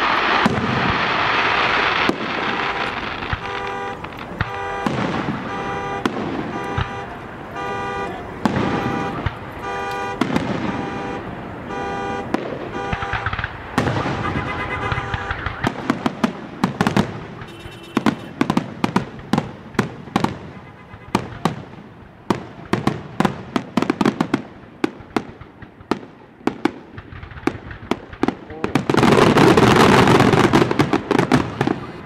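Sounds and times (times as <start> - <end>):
firework shells bursting: 0.0 - 7.8, 8.4 - 32.0
car alarm tones: 2.5 - 18.6, 19.9 - 21.5, 29.0 - 32.0.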